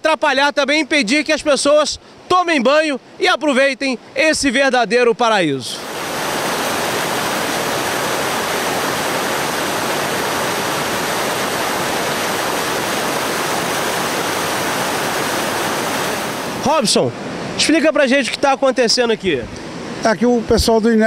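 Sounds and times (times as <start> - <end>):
river water rushing over rocks: 5.8 - 17.8.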